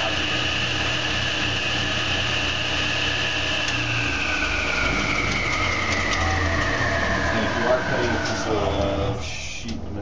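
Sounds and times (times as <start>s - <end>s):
table saw blade whine: 0.0s - 9.6s.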